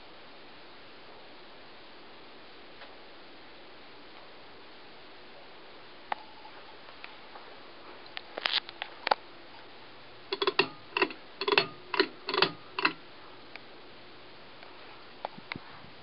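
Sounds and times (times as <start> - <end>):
ceiling fan whirring: 0.0 - 16.0
sharp clicks: 10.3 - 13.0.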